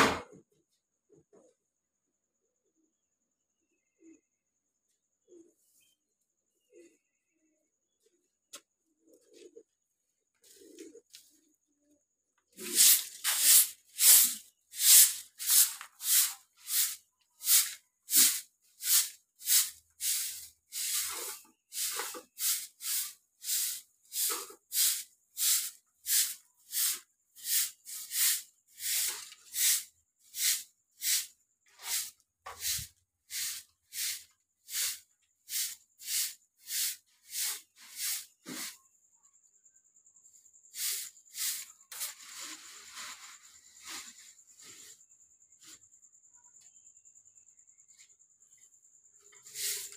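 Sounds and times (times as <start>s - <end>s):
broom sweeping cement floor: 10.3s - 11.5s, 12.5s - 39.0s, 40.6s - 46.0s, 47.9s - 49.9s.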